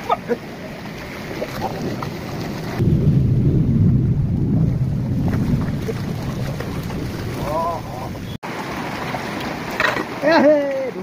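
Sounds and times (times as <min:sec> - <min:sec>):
wind buffeting microphone: 0:01.0 - 0:08.4.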